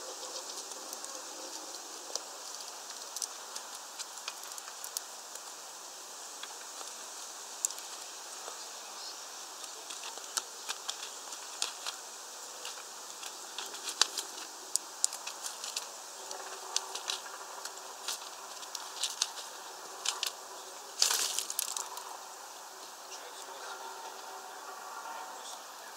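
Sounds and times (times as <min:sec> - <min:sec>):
bird pecking seeds: 0:00.0 - 0:23.0
bird wings flapping: 0:09.6 - 0:22.2.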